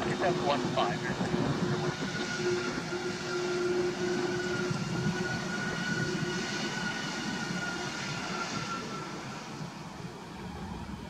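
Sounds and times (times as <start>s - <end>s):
jet engines running: 0.0s - 11.0s.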